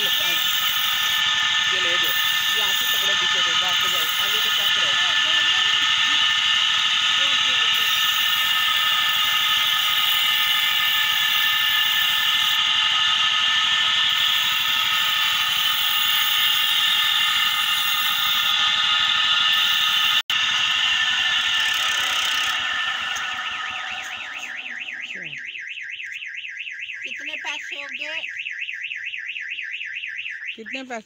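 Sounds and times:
knife grinding squeal: 0:00.0 - 0:25.3.

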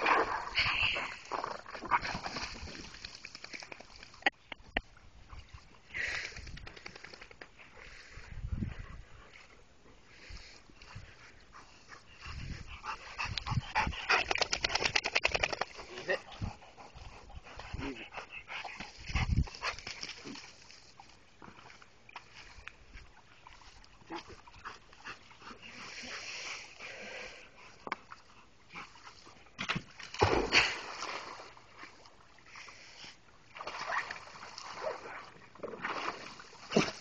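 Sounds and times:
dog splashing into pool: 0:00.0 - 0:04.2, 0:29.6 - 0:32.0, 0:33.5 - 0:37.0
water sloshing and splashing: 0:00.0 - 0:04.3, 0:27.6 - 0:32.8, 0:33.4 - 0:37.0.

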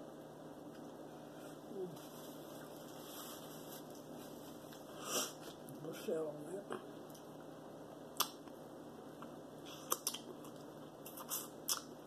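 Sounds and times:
wet mouth smacks and clicks: 0:08.2 - 0:08.5, 0:09.7 - 0:10.3, 0:11.1 - 0:11.9.

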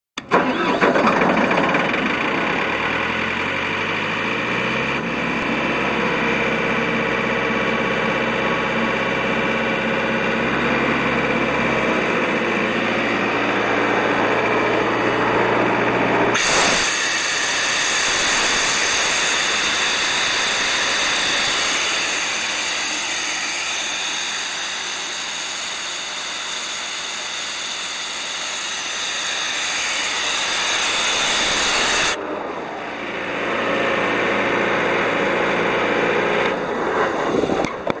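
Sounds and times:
air compressor engine hum: 0:05.0 - 0:37.6
broad hissing rush: 0:16.4 - 0:26.4, 0:28.2 - 0:32.2.

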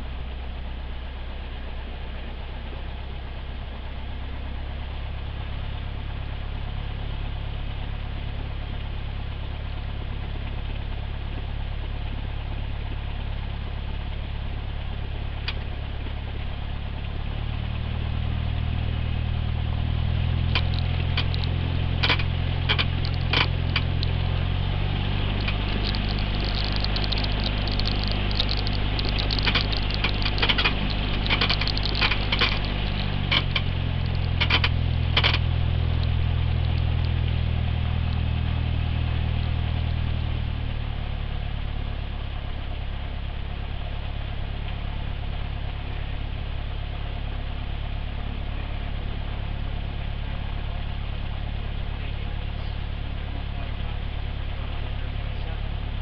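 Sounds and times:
light aircraft engine idling: 0:00.0 - 0:56.0
sharp rattling clicks: 0:20.5 - 0:37.3.

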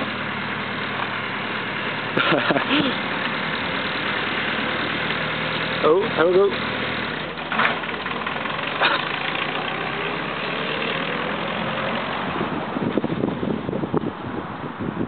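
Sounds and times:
engine running: 0:00.0 - 0:15.0
wind buffeting microphone: 0:12.2 - 0:15.0.

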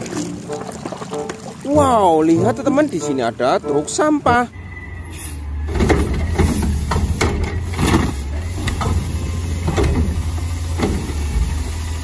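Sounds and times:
garbage truck diesel engine running: 0:03.7 - 0:12.0
trash cart knocks and clanks: 0:05.6 - 0:11.7.

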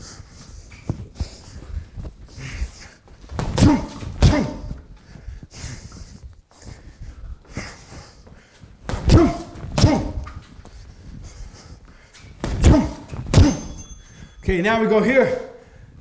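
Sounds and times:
person breathing: 0:00.0 - 0:03.3, 0:04.6 - 0:08.8, 0:10.4 - 0:12.4, 0:13.0 - 0:14.4, 0:15.5 - 0:16.0
gloved punches on heavy bag: 0:03.4 - 0:04.8, 0:08.9 - 0:10.2, 0:12.4 - 0:13.8.

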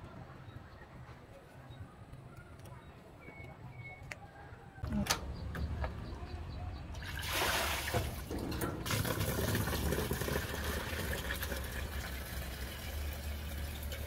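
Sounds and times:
water splashing: 0:07.0 - 0:12.4
water running into plastic basin: 0:07.0 - 0:14.0.

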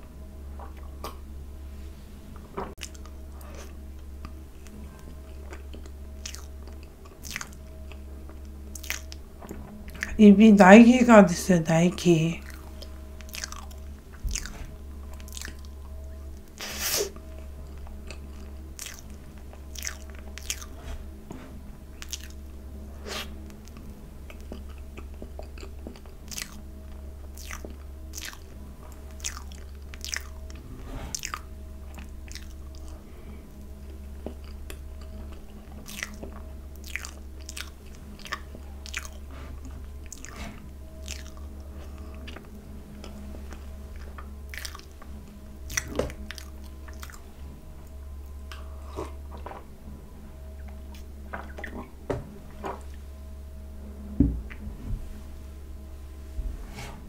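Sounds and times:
steady low hum: 0:00.0 - 0:57.0
wet chewing mouth clicks: 0:02.8 - 0:04.4, 0:05.4 - 0:10.2, 0:12.4 - 0:15.7, 0:16.5 - 0:20.8, 0:22.0 - 0:33.0, 0:34.2 - 0:43.1, 0:44.0 - 0:45.0, 0:45.7 - 0:47.2.

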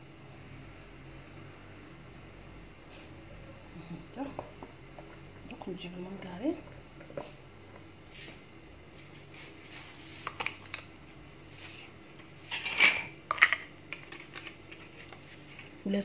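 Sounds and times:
utensils and dishes clinking: 0:12.4 - 0:14.2
clatter of metal and crockery: 0:12.4 - 0:14.5.

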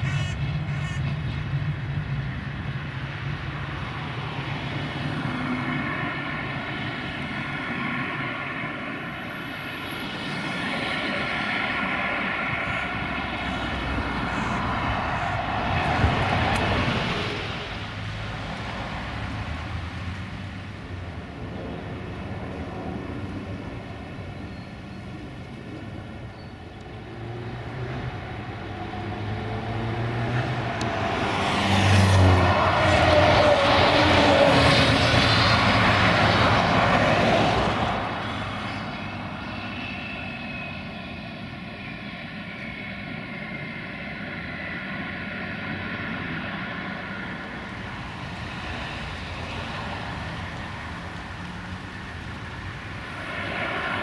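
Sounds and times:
bus driving past: 0:00.0 - 0:54.0
jet engines humming overhead: 0:00.0 - 0:54.0.

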